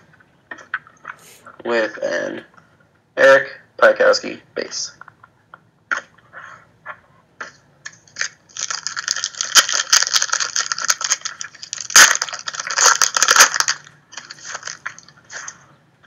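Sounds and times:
foil wrapper crinkling and tearing: 0:08.1 - 0:15.6.

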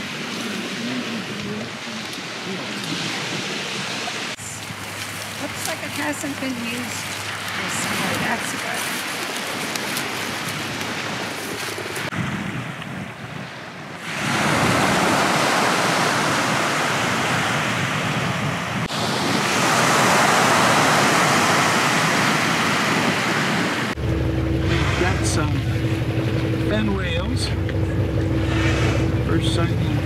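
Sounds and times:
sea water rushing: 0:00.0 - 0:30.0
wind rushing: 0:10.5 - 0:26.8.

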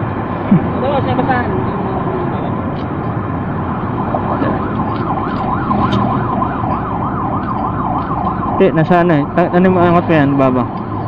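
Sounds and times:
street traffic hum: 0:00.0 - 0:11.0
emergency siren yelping: 0:03.2 - 0:11.0.

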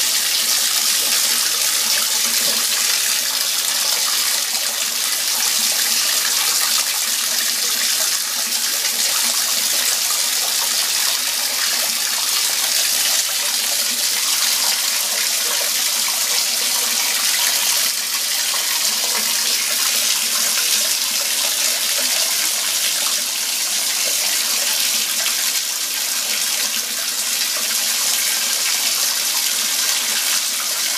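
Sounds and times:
bathtub tap running: 0:00.0 - 0:22.2.

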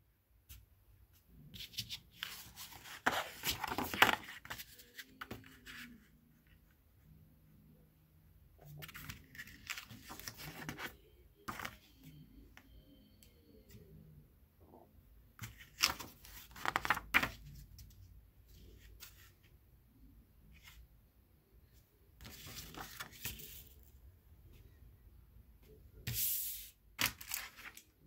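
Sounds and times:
paper rustling and crackling: 0:01.6 - 0:05.9, 0:08.7 - 0:11.9, 0:15.4 - 0:17.5, 0:22.2 - 0:23.8, 0:27.0 - 0:27.9.

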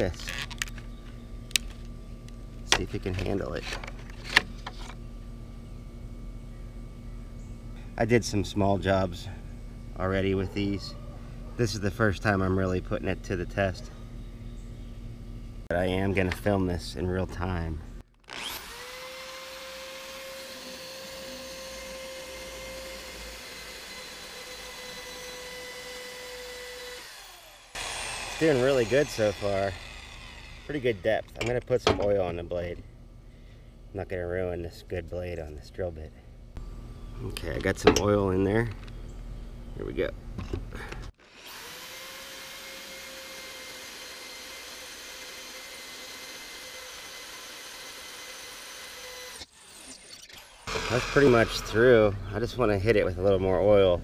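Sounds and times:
electric drill boring into bolt: 0:18.2 - 0:31.0, 0:41.2 - 0:52.2.

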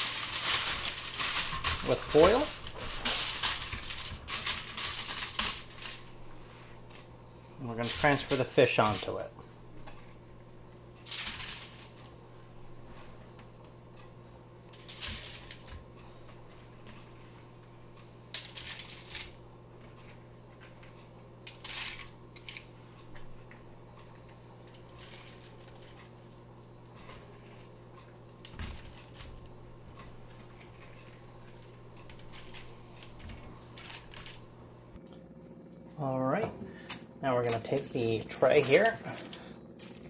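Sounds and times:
aluminium foil crinkling: 0:00.0 - 0:06.2, 0:07.8 - 0:09.3, 0:11.0 - 0:12.1, 0:14.7 - 0:15.8, 0:18.4 - 0:19.4, 0:21.4 - 0:22.7, 0:24.7 - 0:26.4, 0:28.4 - 0:29.6, 0:30.3 - 0:34.6, 0:36.9 - 0:40.0
steady low hum: 0:00.0 - 0:40.0.

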